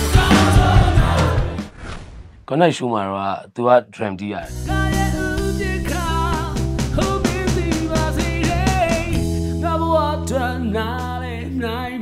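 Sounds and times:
bass guitar: 0.0 - 1.6, 4.5 - 12.0
person singing: 0.0 - 1.6, 4.5 - 12.0
steady drumbeat: 0.0 - 1.6, 4.7 - 9.2.

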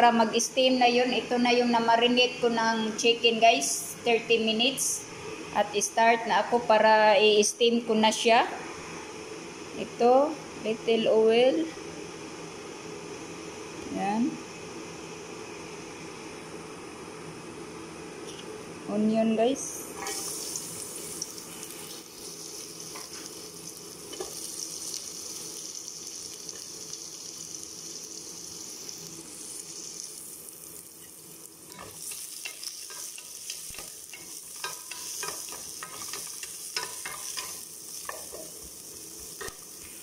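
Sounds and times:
onions sizzling in oil: 19.2 - 40.0.

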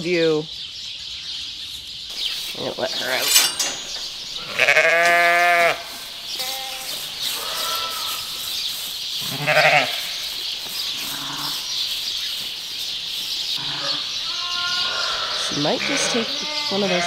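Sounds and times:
background hiss: 2.1 - 17.0
sheep bleating: 4.4 - 8.4, 9.2 - 10.2, 11.0 - 11.7, 13.6 - 17.0.

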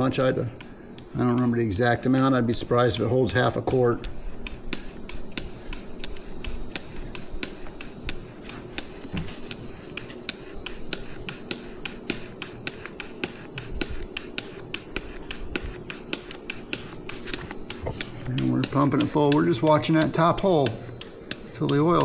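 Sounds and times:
hand oil pump clicking: 15.9 - 22.0.

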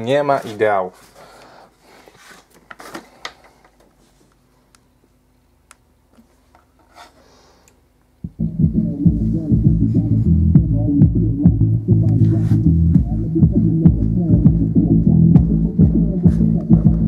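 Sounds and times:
bass-heavy music from subwoofer: 8.2 - 17.0.

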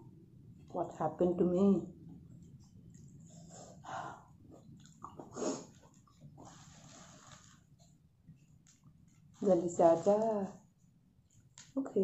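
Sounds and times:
person breathing: 3.3 - 4.4.

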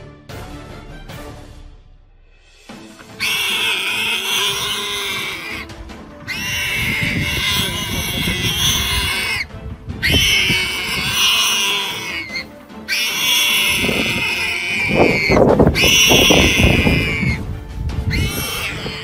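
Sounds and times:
animal squealing: 3.0 - 17.5, 18.1 - 19.0
low growling: 6.3 - 17.4.

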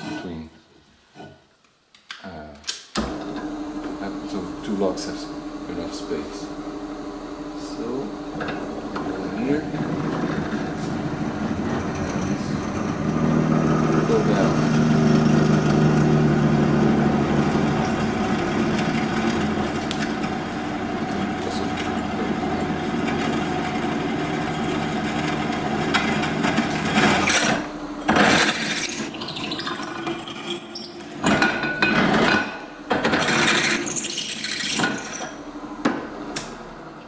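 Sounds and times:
drill press motor hum: 3.0 - 37.0
harsh metal cutting bursts: 7.3 - 35.3.

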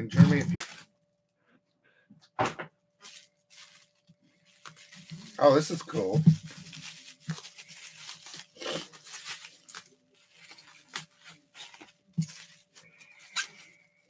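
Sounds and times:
packaging rustling and tearing: 3.0 - 14.0.

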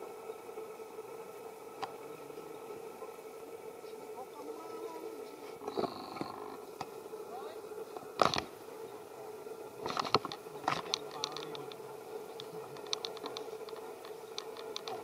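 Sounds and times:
faint hum: 0.0 - 15.0
light irregular clicking: 9.8 - 15.0.

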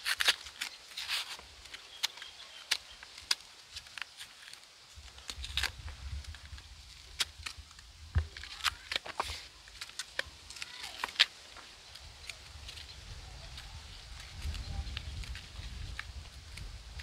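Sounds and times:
knives scraping banana peel: 0.0 - 11.3.

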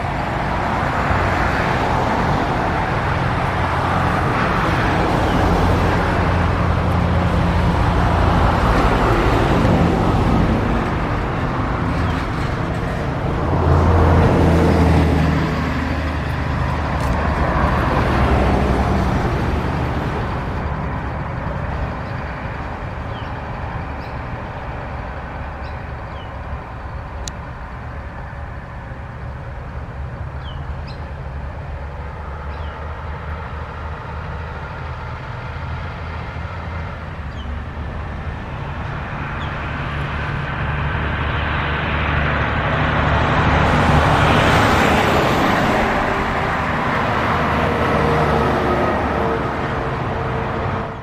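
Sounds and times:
freight wagons rolling on rails: 2.0 - 27.3.

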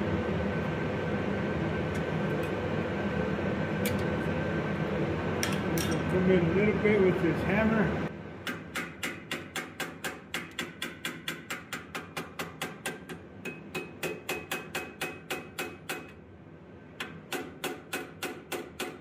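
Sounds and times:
small hammer tapping on steel: 8.4 - 16.2.

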